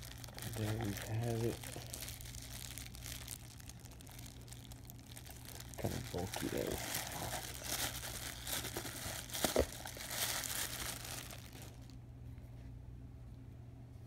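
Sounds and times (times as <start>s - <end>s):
plastic wrapping crinkling: 0.0s - 12.0s.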